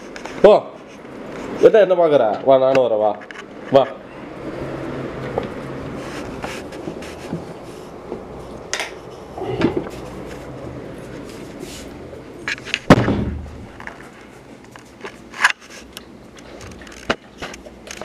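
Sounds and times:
person moving about room: 0:00.0 - 0:18.0
wooden door clicks and knocks: 0:12.9 - 0:13.5
loud knock: 0:12.9 - 0:13.6.

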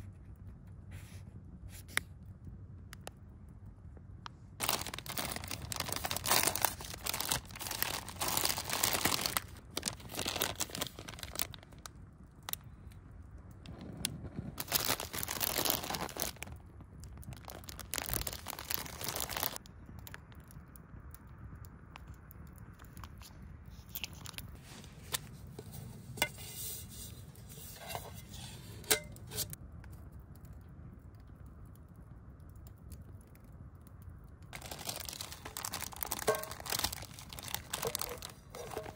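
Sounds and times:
fabric rustling and crinkling: 0:04.6 - 0:11.8, 0:13.8 - 0:16.6, 0:17.3 - 0:19.6, 0:34.6 - 0:38.9.

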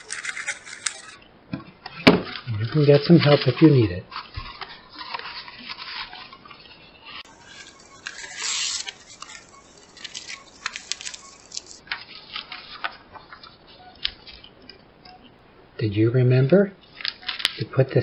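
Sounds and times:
loud plastic rustle: 0:00.0 - 0:01.2, 0:07.1 - 0:13.4
plastic film crinkling: 0:00.0 - 0:01.2, 0:02.3 - 0:14.5.

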